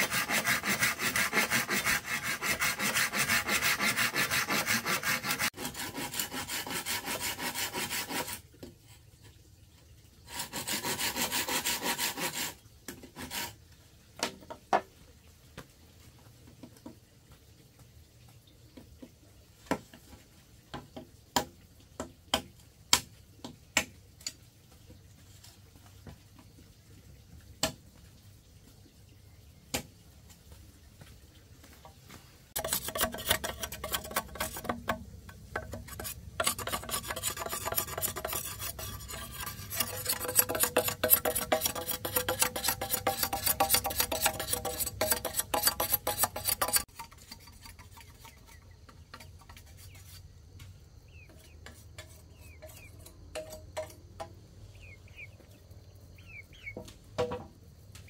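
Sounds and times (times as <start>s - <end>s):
blade rasping along bamboo: 0.0s - 8.4s, 10.3s - 13.6s, 32.6s - 50.4s, 51.3s - 53.9s.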